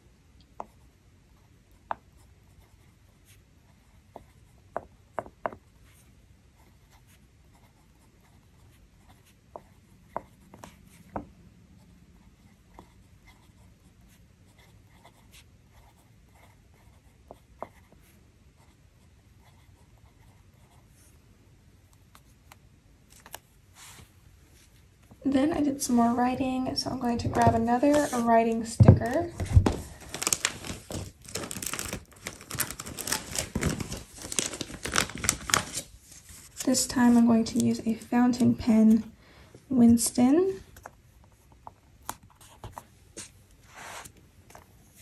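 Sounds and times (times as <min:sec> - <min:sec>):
fountain pen scratching paper: 0:05.6 - 0:11.2, 0:12.2 - 0:21.1.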